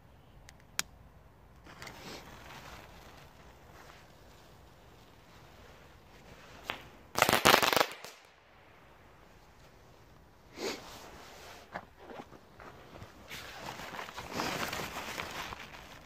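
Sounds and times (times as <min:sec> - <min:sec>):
firework cracks: 0:06.6 - 0:08.6.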